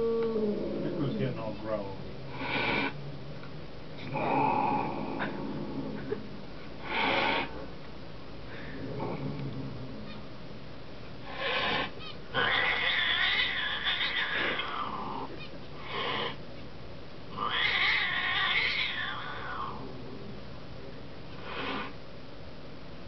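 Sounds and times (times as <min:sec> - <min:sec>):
cat yowling: 0:11.5 - 0:16.4, 0:17.4 - 0:19.8
cat meowing calls: 0:11.7 - 0:16.4, 0:17.4 - 0:19.8.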